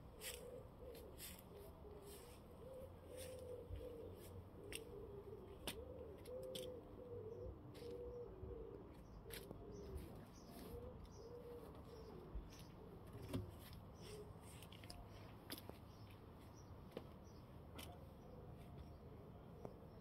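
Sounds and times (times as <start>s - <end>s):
pigeon cooing: 0.0s - 13.4s.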